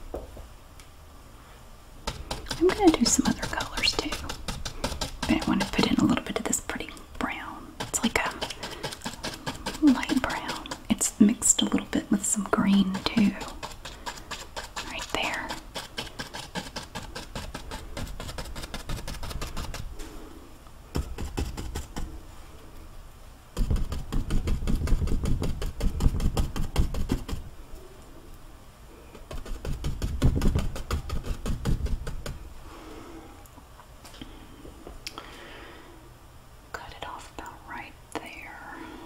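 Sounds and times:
paintbrush dabbing on canvas: 2.0 - 20.0, 20.9 - 22.2, 23.6 - 27.5, 29.2 - 32.5.

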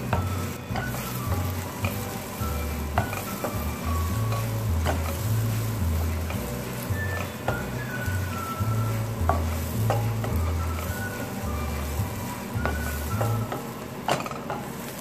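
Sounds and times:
food sizzling in pan: 0.0 - 15.0
spatula knocking against pan: 2.9 - 3.7, 4.3 - 5.3, 9.1 - 14.7.

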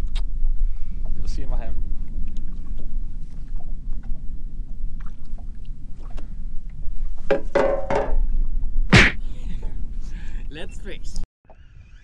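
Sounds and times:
water lapping against a boat: 0.0 - 7.6
low wind rumble: 0.0 - 11.2.

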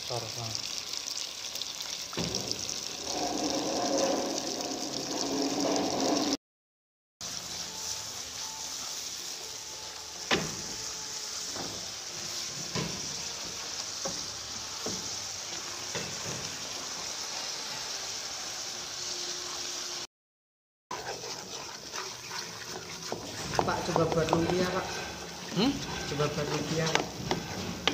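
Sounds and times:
paste sizzling in a frying pan: 0.0 - 6.4, 7.2 - 20.1, 20.9 - 27.9
wooden spatula knocking on pan: 23.1 - 25.0, 26.8 - 27.9.

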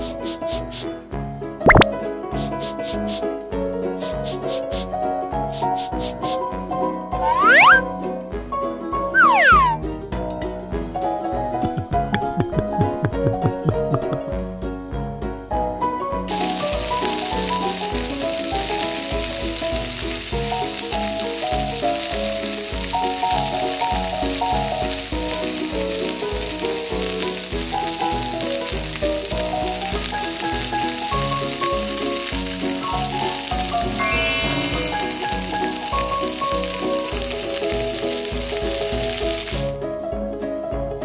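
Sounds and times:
hot oil sizzling in frying pan: 0.0 - 0.9, 1.7 - 3.4, 4.0 - 6.4, 7.2 - 7.8, 16.3 - 39.8
light bouncy background tune: 6.2 - 16.2.

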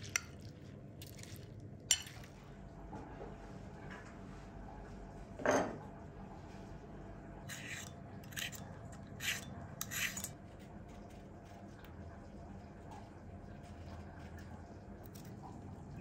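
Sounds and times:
peeler scraping cucumber: 7.5 - 10.4.

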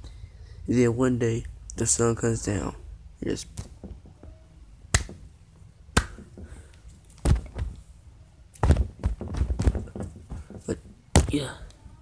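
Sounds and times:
dull thuds of dough smashed: 5.9 - 6.6, 7.2 - 7.8, 8.6 - 10.5, 11.1 - 11.4.

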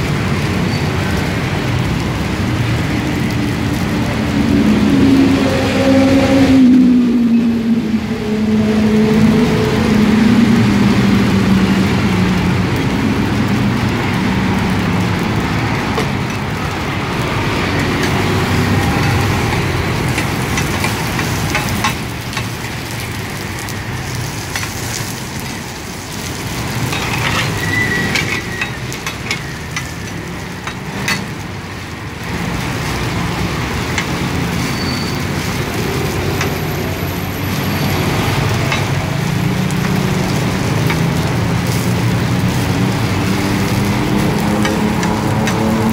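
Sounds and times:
oil sizzling in a wok: 0.0 - 45.9
low rumble: 2.8 - 23.8.

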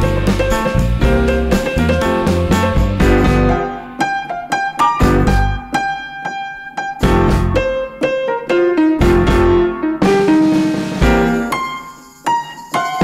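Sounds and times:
bass: 0.0 - 3.8, 5.0 - 5.7, 7.0 - 7.9, 9.0 - 11.5
electric piano melody: 0.0 - 13.0.

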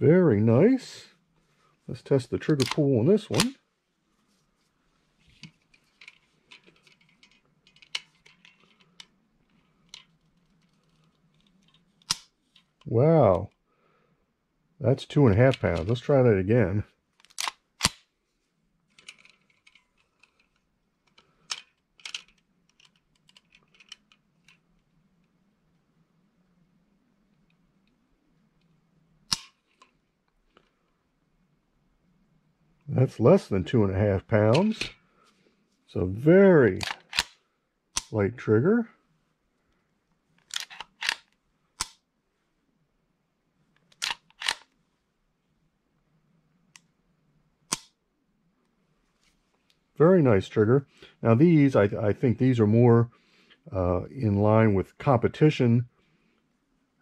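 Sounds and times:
trigger gauge clicks and rattles: 2.4 - 3.6, 17.2 - 18.0, 18.9 - 24.6, 36.8 - 37.4, 40.4 - 42.0, 43.8 - 44.8
pistol slide clicks: 17.2 - 18.0, 36.8 - 37.4, 43.9 - 44.7
pistol action metallic clacks: 36.8 - 37.4, 40.5 - 42.0, 43.9 - 44.7.

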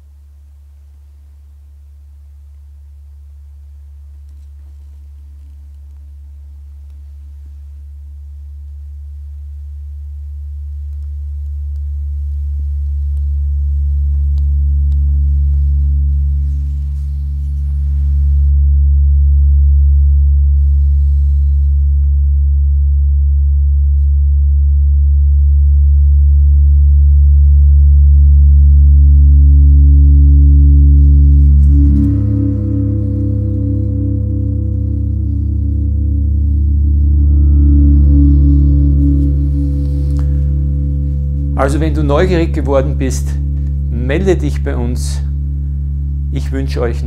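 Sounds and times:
gong singing under friction mallet: 31.3 - 44.0.

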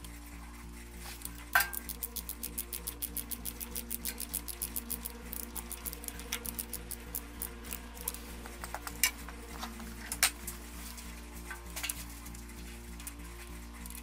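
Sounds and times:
ratchet wrench clicking: 1.3 - 8.2.

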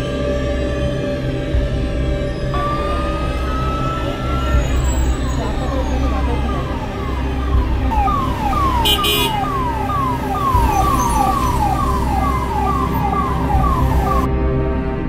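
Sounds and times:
vehicle engine rumble: 0.0 - 15.0
emergency vehicle siren: 2.5 - 14.3.

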